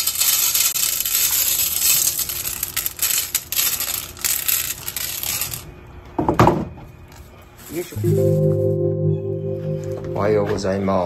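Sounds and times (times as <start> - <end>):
kibble rattling on metal tray: 0.0 - 5.6.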